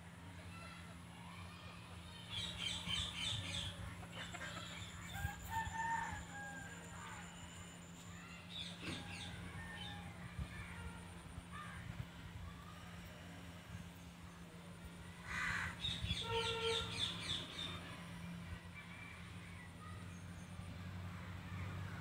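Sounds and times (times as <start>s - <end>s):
rooster crowing: 5.2s - 7.1s.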